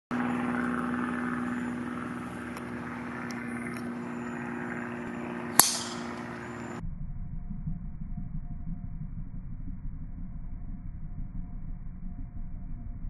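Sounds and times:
steady low hum: 0.1 - 13.0
golf club striking ball: 0.6 - 6.7.

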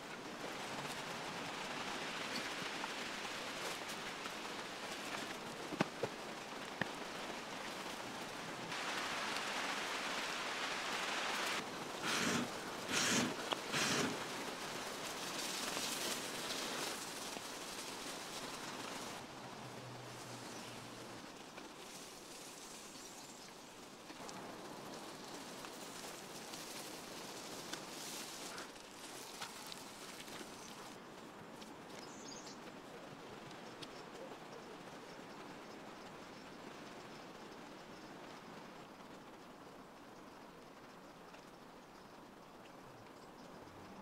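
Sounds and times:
fire crackling: 0.0 - 33.9
meat sizzling on hot rock: 12.0 - 14.2.

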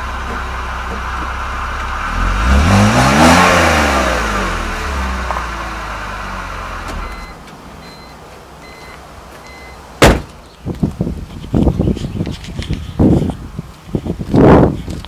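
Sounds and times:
car engine revving and stopping: 0.0 - 7.4
loud thump: 6.8 - 7.4, 10.0 - 10.4
short electronic beeps: 7.0 - 9.8.

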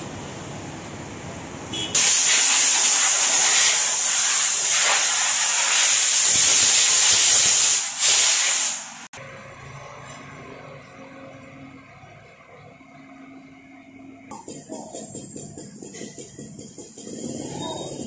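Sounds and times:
car-wash nozzle spraying: 2.0 - 9.0.

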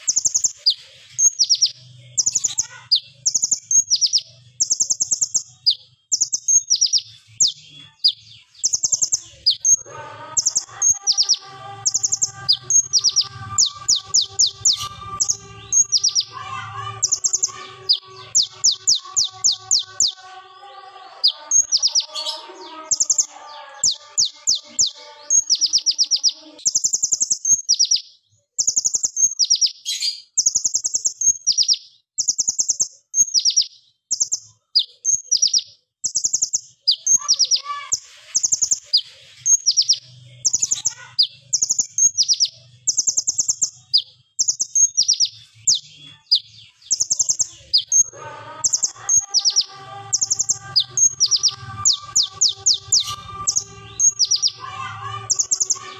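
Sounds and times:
bird singing trilled bursts: 0.0 - 55.9.

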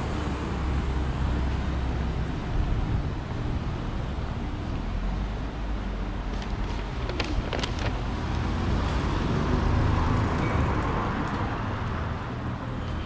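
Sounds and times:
street traffic rumble: 0.0 - 13.0
vehicle passing: 7.2 - 12.1.

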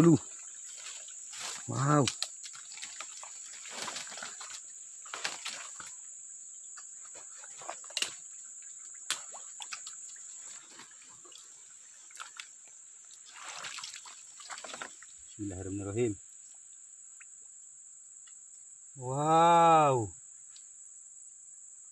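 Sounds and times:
high-pitched insect drone: 0.0 - 21.9
footsteps through leaf litter: 0.8 - 1.8.

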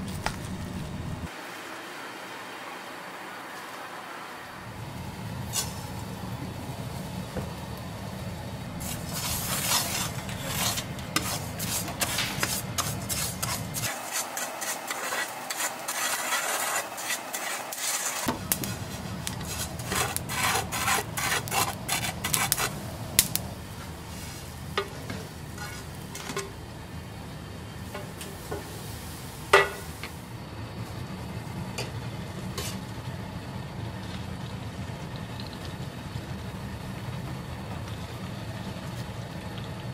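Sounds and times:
fish sizzling in oil: 1.2 - 39.9
spatula scraping grains in pan: 5.5 - 5.9, 8.8 - 26.4, 32.6 - 32.8.

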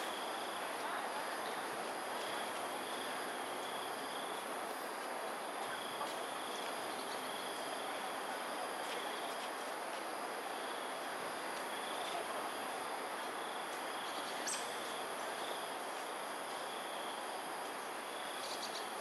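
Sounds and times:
background hiss: 0.0 - 19.0
short high insect call: 18.1 - 19.0
insect high-pitched trill: 18.4 - 19.0.

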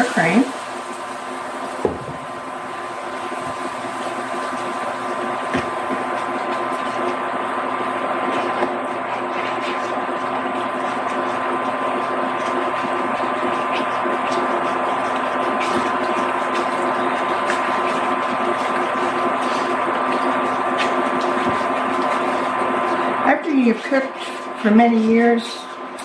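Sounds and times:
induction cooktop humming and whining: 0.0 - 26.0.

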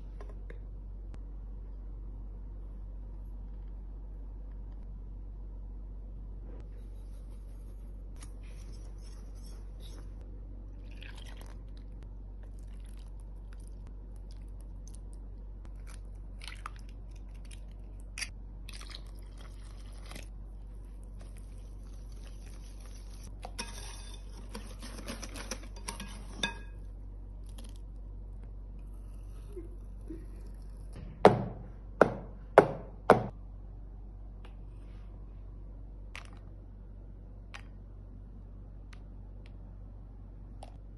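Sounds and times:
steady low hum: 0.0 - 40.9
batter mixed in a bowl: 6.6 - 31.1.

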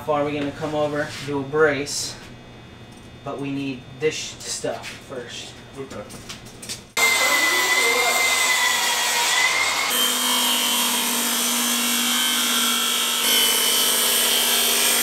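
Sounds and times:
circular saw cutting plywood: 7.0 - 15.0.

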